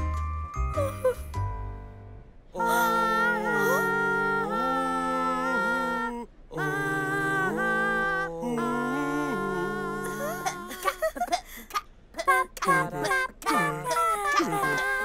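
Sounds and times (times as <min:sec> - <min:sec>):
cartoon voices singing in harmony: 0:02.6 - 0:11.1, 0:12.2 - 0:15.0.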